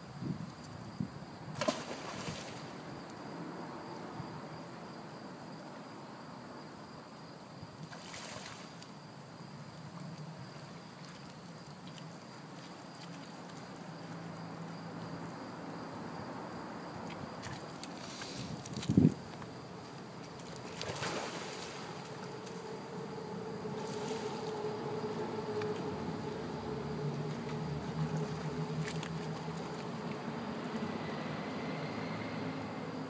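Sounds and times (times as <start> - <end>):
dog splashing through water: 20.3 - 22.0.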